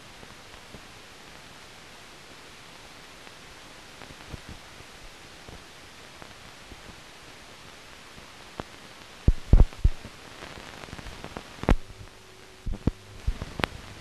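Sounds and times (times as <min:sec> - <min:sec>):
old film soundtrack hiss: 0:00.0 - 0:14.0
low hum: 0:11.7 - 0:14.0
scattered clicks: 0:12.7 - 0:13.9.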